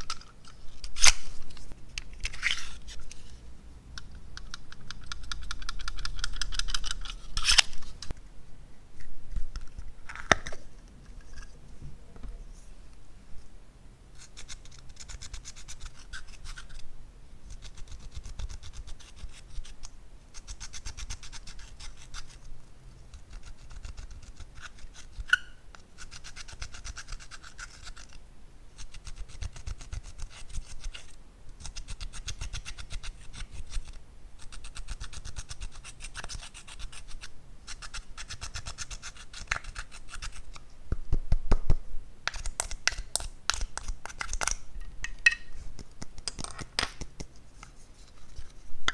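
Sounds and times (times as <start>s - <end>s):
tool scratching plastic palette: 17.5s - 22.5s, 23.1s - 28.2s, 28.8s - 40.6s.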